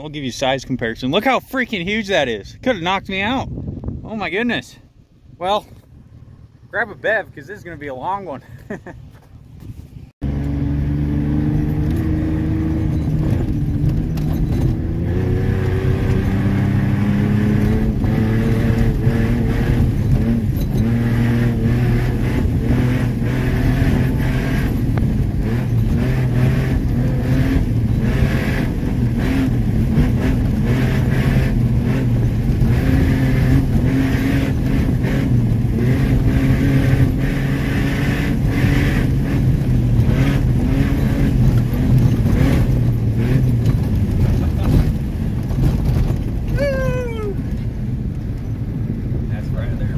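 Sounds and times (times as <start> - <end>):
road noise: 0.0 - 49.9
pickup engine accelerating: 5.8 - 49.9
knocks and rattles over bumps: 11.6 - 48.7.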